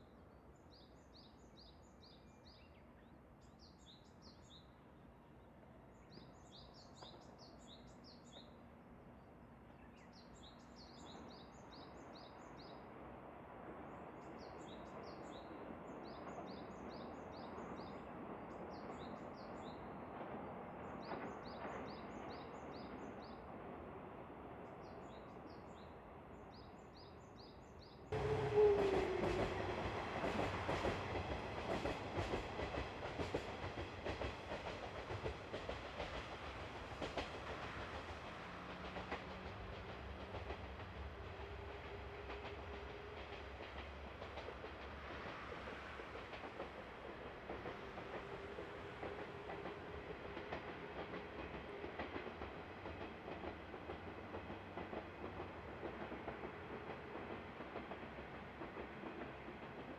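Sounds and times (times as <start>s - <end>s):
diesel train engine hum: 28.2s - 59.9s.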